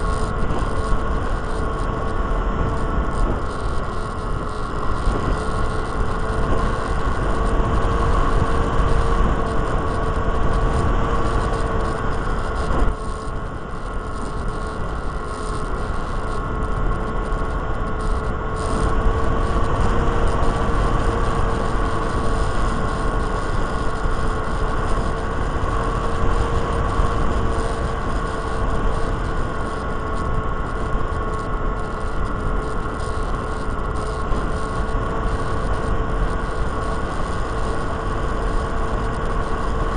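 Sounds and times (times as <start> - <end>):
electric motor and propeller whining: 0.0 - 39.9
wind rumble on microphone: 0.0 - 39.9.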